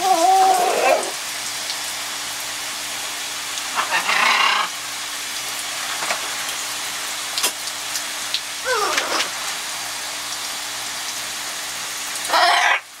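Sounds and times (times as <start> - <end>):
shower spray hissing: 0.0 - 13.0
harsh macaw squawk: 3.7 - 4.8, 8.7 - 9.4, 12.3 - 12.9
water drip ticks: 7.3 - 9.4.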